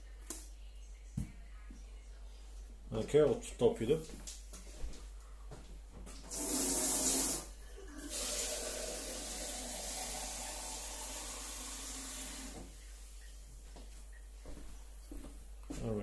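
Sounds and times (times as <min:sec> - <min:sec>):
tap water filling plastic tank: 0:08.0 - 0:13.3.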